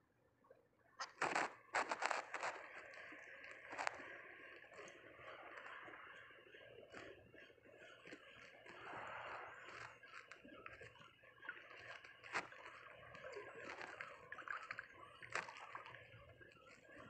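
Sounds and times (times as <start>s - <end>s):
seawater lapping: 1.2s - 17.0s.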